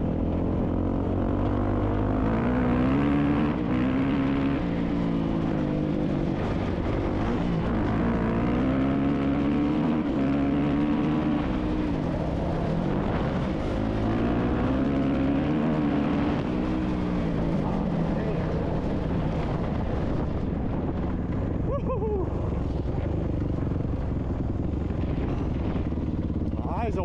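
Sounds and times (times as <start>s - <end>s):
dirt bike engine revving: 0.0s - 20.2s.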